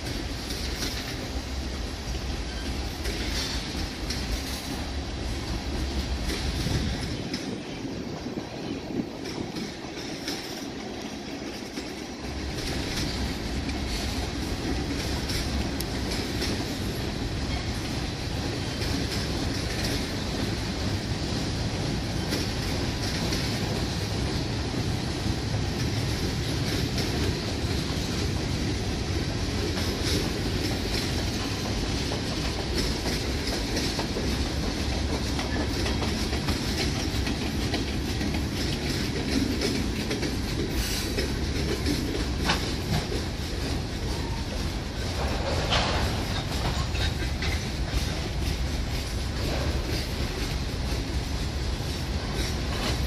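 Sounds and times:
train wheels rumbling on rails: 0.0s - 53.0s
wheels clicking and clacking: 8.8s - 20.8s, 25.6s - 53.0s.

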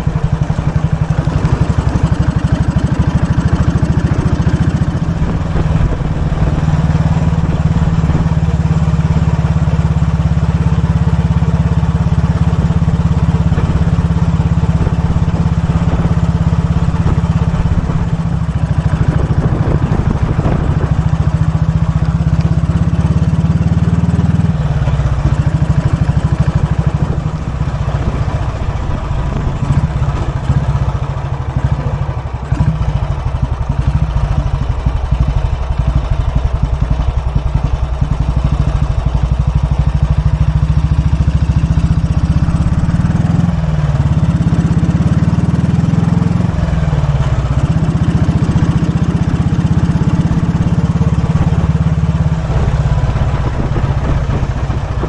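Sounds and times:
motorcycle engine running: 0.0s - 55.0s.

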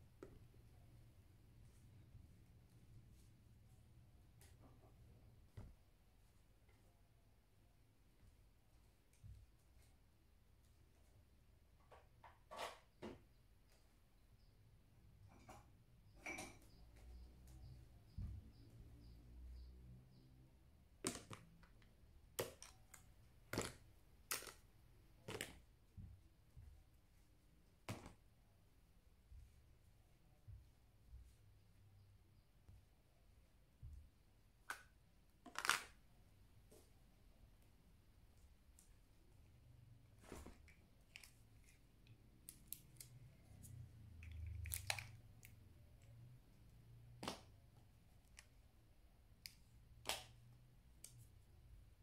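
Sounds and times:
plastic cosmetic items clicking: 21.0s - 25.6s.

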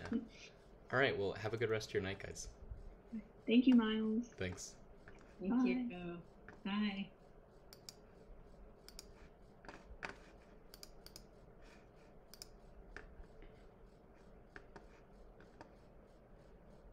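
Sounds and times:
faint scattered clicks: 7.7s - 8.0s, 8.9s - 9.8s, 10.7s - 11.3s, 12.3s - 13.1s.

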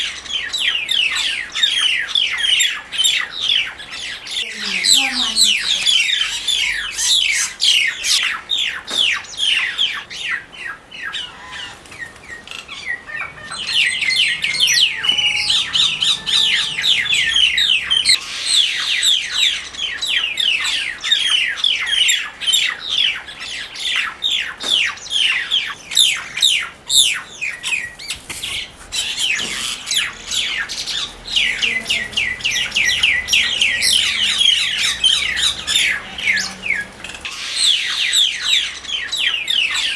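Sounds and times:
mynas squawking harshly: 12.5s - 19.4s, 28.5s - 38.8s.

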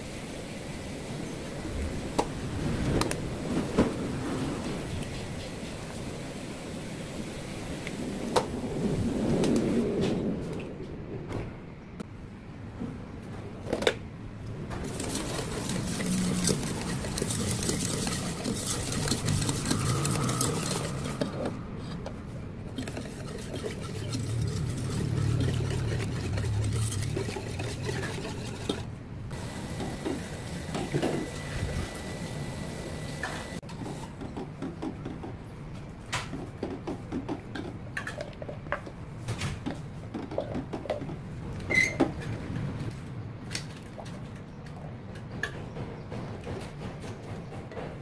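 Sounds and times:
whisk scraping a pot: 14.8s - 22.1s, 22.7s - 28.9s.

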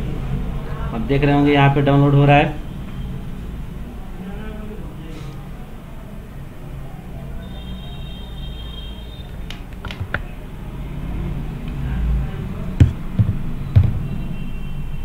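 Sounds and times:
sharp clicks and knocks: 9.5s - 10.3s, 12.8s - 14.1s.

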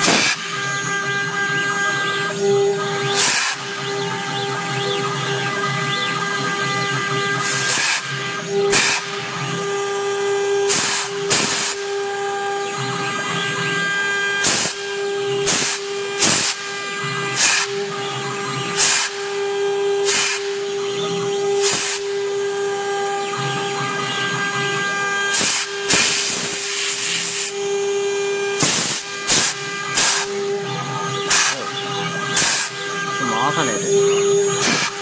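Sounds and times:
router spindle whining: 0.0s - 35.0s
short hissing bursts: 10.7s - 11.8s, 15.5s - 16.6s, 18.8s - 19.2s, 20.0s - 20.5s, 21.6s - 22.0s, 25.3s - 27.5s, 28.6s - 30.3s, 31.3s - 31.6s, 32.4s - 32.7s.

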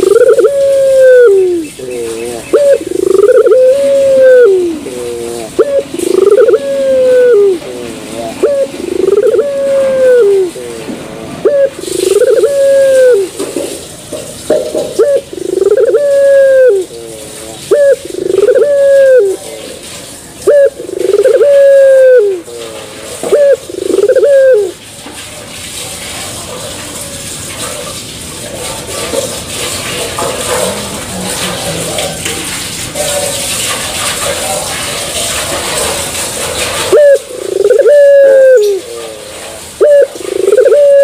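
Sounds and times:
dove cooing: 0.0s - 13.4s, 14.5s - 24.8s, 36.6s - 41.0s
steady hiss: 0.0s - 24.8s.

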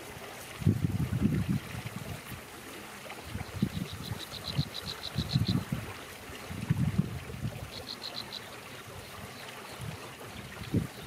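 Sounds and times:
wind buffeting microphone: 0.5s - 2.4s, 3.2s - 7.8s, 9.8s - 11.0s.

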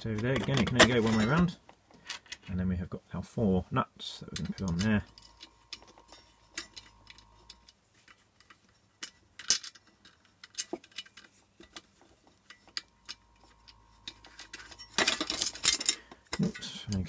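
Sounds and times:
metal nuts clicking onto studs: 4.3s - 17.0s.

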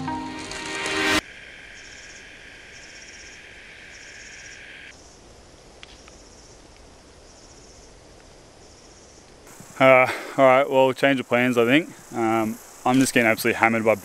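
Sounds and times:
insect high buzz: 0.8s - 14.0s
insect pulsing trill: 1.0s - 5.2s, 8.6s - 14.0s.

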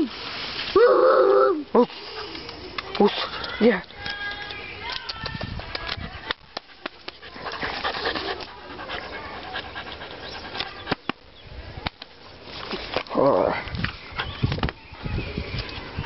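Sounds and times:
puppy panting: 5.8s - 11.1s.

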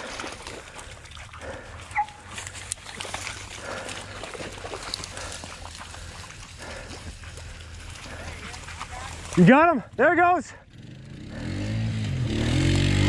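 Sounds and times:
dog yelping: 1.9s - 2.3s.

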